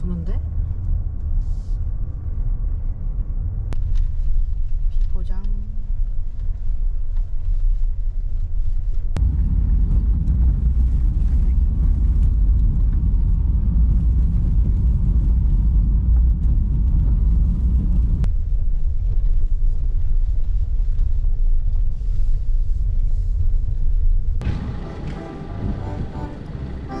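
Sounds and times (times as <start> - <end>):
car road rumble on gravel: 5.9 - 27.0.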